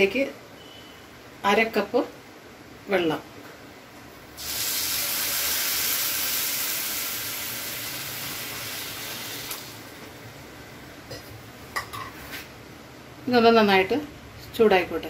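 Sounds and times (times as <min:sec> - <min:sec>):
water hissing in a hot pan: 0:04.4 - 0:09.9.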